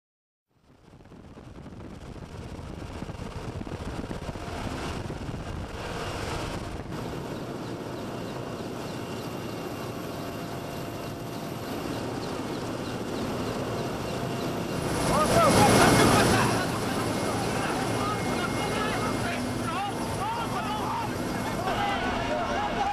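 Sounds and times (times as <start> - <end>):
helicopter engine and rotor noise: 0.6 - 22.9
thin whining tone: 7.0 - 22.1.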